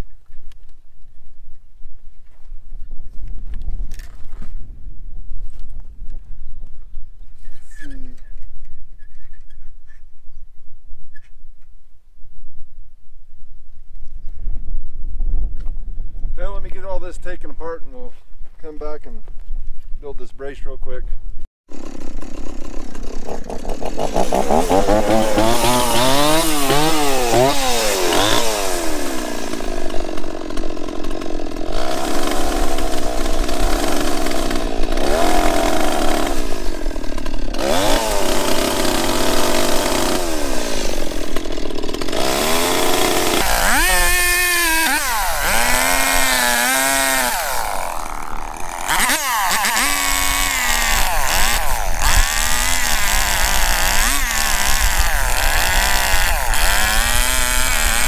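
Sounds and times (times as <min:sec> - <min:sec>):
chainsaw cutting wood: 0:21.7 - 0:58.0.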